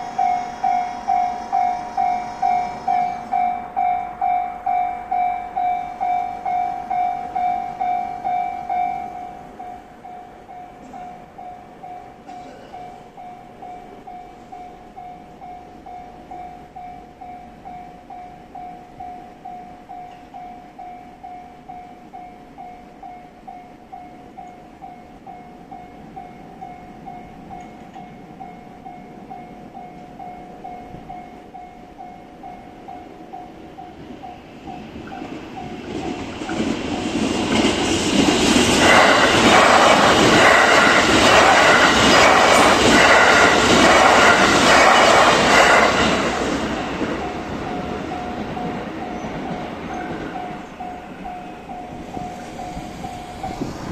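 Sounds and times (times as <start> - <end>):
level crossing alarm bell: 0.0 - 36.4, 38.2 - 53.9
train passing: 0.0 - 53.9
train wheels clattering: 33.4 - 53.9.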